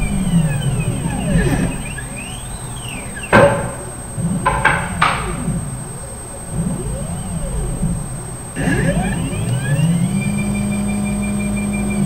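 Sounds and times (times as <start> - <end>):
stepper motors whining: 0.0 - 12.0
quick knocks: 3.2 - 5.7.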